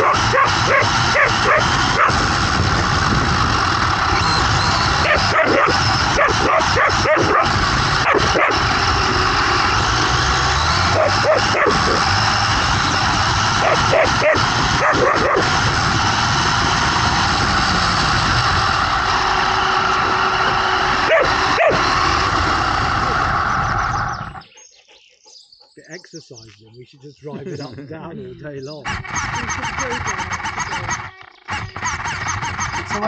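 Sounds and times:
dog barking: 0.0 - 2.2, 5.0 - 8.6, 10.9 - 12.0, 13.6 - 15.5, 21.0 - 21.9
rc car motor whirring: 0.0 - 24.5, 28.7 - 33.0.

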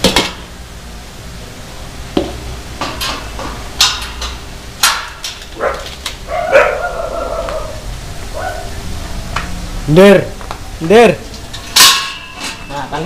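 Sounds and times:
dog whining or howling: 5.6 - 8.8
dogs barking: 5.6 - 8.8.

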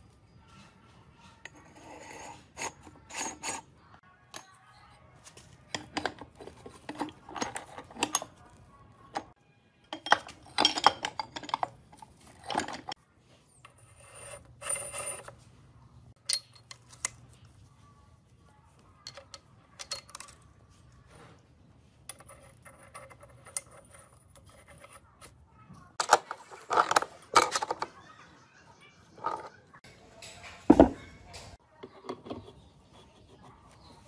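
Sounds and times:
metal parts clinking: 5.7 - 9.3, 9.9 - 13.0, 16.2 - 17.3, 19.0 - 20.5, 26.0 - 28.0.

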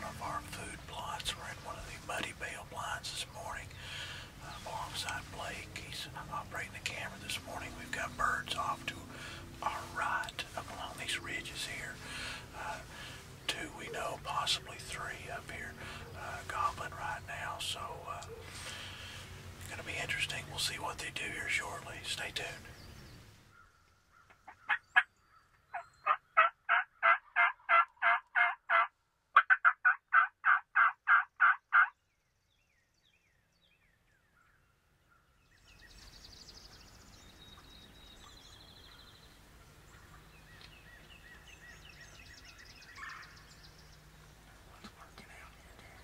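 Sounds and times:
songbirds chirping: 0.0 - 29.4, 31.3 - 46.0
wild turkey yelping: 25.7 - 31.9.

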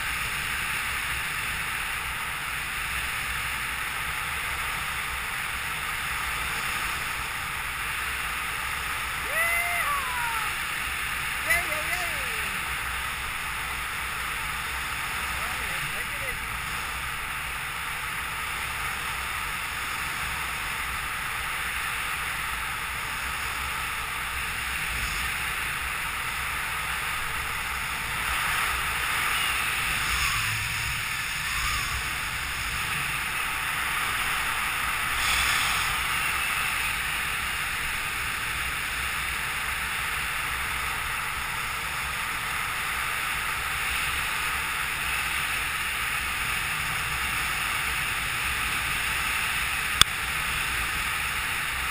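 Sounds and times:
wind rush over microphone: 22.7 - 39.0.

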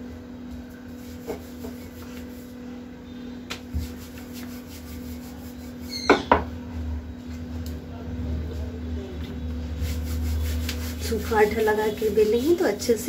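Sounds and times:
steady low hum: 0.0 - 13.0
rolling pin rolling dough: 0.8 - 2.6, 3.6 - 6.3, 9.8 - 13.0.

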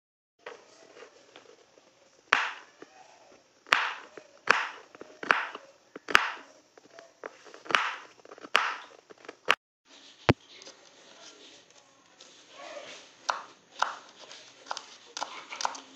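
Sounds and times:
knife chopping on cutting board: 2.3 - 2.7, 3.7 - 6.5, 7.6 - 8.9, 13.2 - 15.9.

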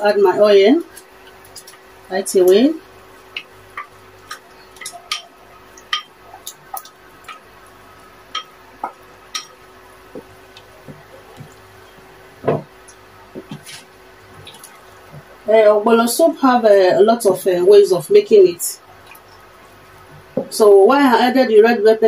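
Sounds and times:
soup boiling with bubbles popping: 2.8 - 15.4.

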